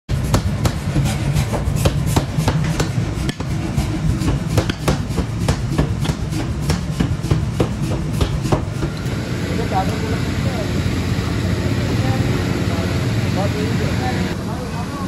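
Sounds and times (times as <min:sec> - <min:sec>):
hammer striking hot metal: 0:00.1 - 0:10.2
low machinery hum: 0:00.1 - 0:15.0
sledgehammer hitting metal bar: 0:00.2 - 0:08.9.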